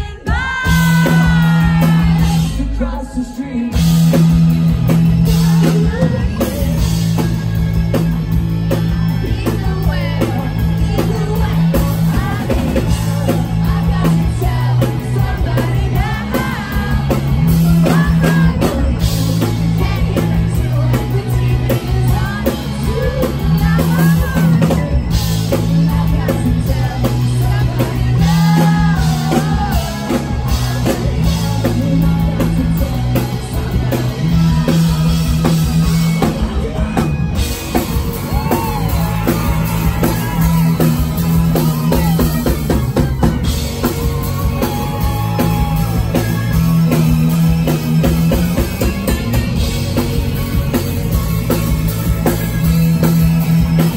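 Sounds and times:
person singing lead vocal: 0.0 - 49.7
drums: 0.0 - 53.9
live rock band playing: 0.0 - 53.9
loud electric bass line: 0.0 - 53.9.

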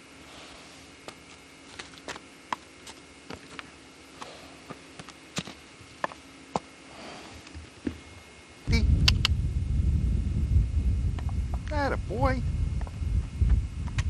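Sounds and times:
horse snuffling breaths: 0.2 - 1.0, 4.1 - 4.9, 6.9 - 7.7
loud rumble: 8.7 - 14.0.

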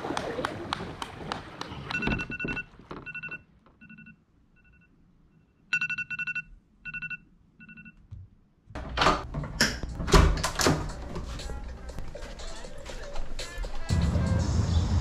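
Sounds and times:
phone alarm beeping: 1.9 - 8.0.

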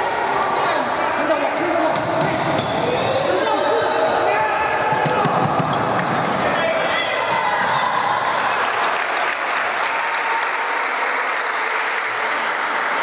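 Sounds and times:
spectators applauding: 8.2 - 13.0.

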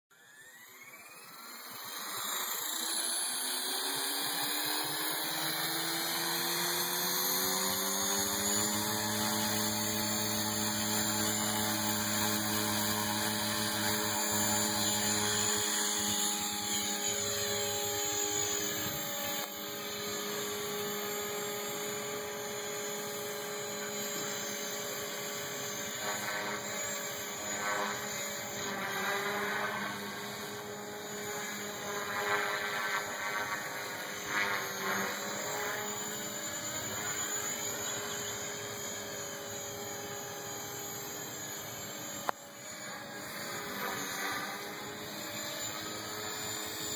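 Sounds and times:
rc helicopter motor whine: 0.1 - 46.9.

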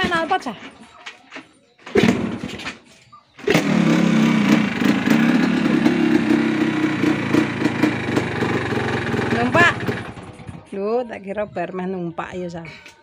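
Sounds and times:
motorcycle engine starting and idling: 1.8 - 10.8.

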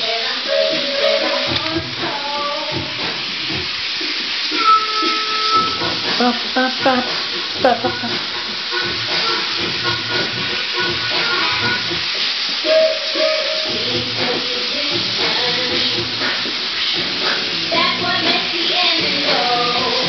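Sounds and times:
steam hissing: 0.0 - 20.0
low whistle-like tone: 4.5 - 6.0.

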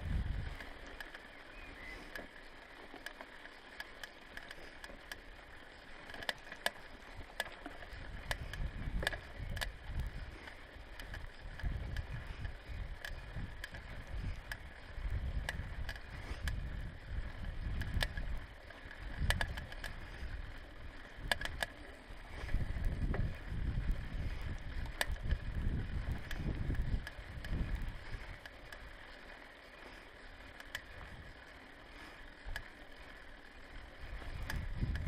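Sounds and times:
wind on microphone: 0.0 - 0.6, 8.0 - 10.5, 22.3 - 28.4, 34.2 - 35.0
bicycle tyres rumbling on grass: 0.0 - 35.0
bike clicks and rattles: 0.0 - 35.0.

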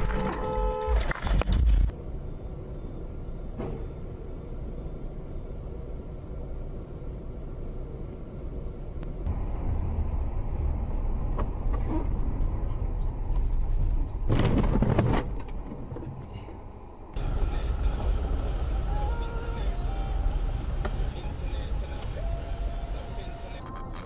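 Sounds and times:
car road rumble: 0.0 - 24.0.

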